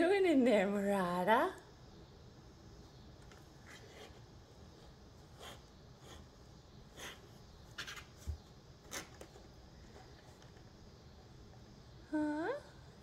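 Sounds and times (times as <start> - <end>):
cat claws scratching cardboard: 5.3 - 10.7.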